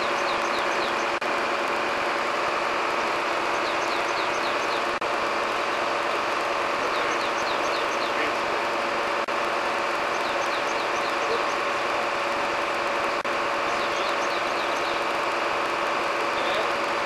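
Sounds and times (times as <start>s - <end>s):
bird chirping: 0.0s - 1.2s, 3.5s - 4.9s, 6.8s - 8.3s, 10.1s - 11.6s, 13.7s - 15.1s
crane truck engine droning: 0.0s - 17.0s.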